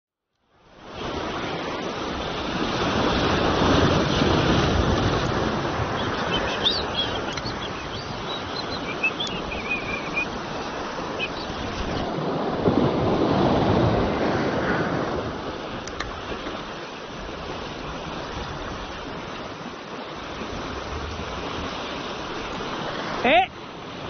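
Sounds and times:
surf washing over rocks: 0:00.5 - 0:24.0
wind on microphone: 0:00.8 - 0:23.2
faint high chirps: 0:06.0 - 0:10.3.

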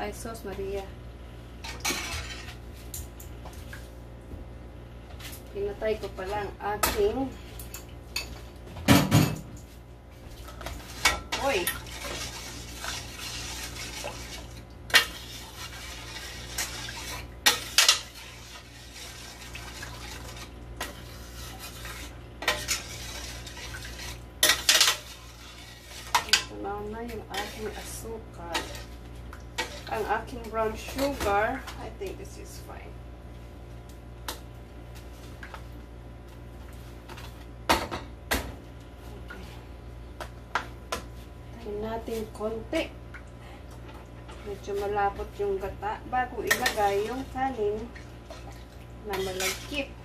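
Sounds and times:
steady low hum: 0:00.0 - 0:50.0
spoon stirring liquid in a pan: 0:01.6 - 0:02.6, 0:10.3 - 0:31.8, 0:46.2 - 0:50.0.

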